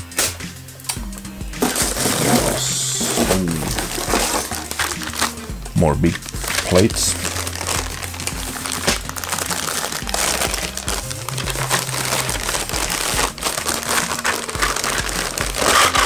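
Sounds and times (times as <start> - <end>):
plastic bag crinkling: 1.6 - 16.0.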